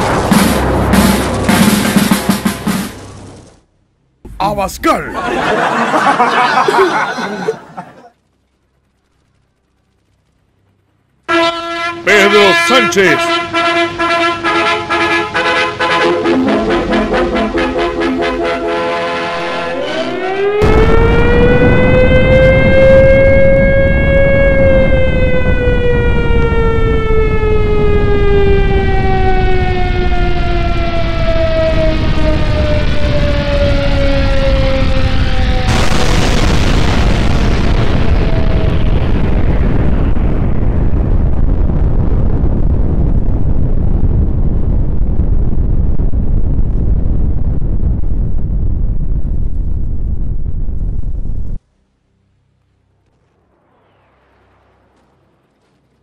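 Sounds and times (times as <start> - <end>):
heavy low rumble: 0.0 - 11.3, 15.2 - 56.0
air-raid siren wailing: 11.3 - 35.8
explosion hiss: 35.6 - 43.6.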